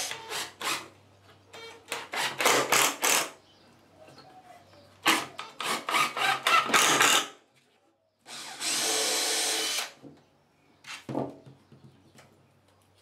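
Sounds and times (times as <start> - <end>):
cordless drill drilling: 8.3 - 10.0.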